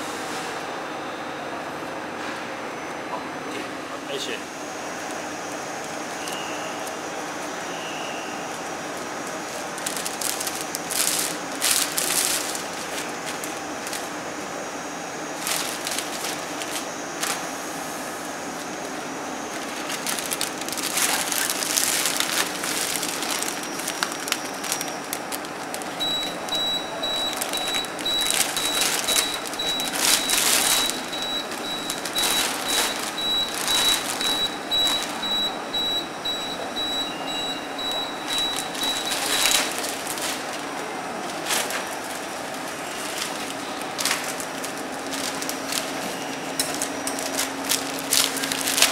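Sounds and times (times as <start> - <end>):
steady background hum: 0.0 - 48.9
plastic film rustling and crinkling: 8.4 - 14.4, 15.3 - 17.6, 19.0 - 48.9.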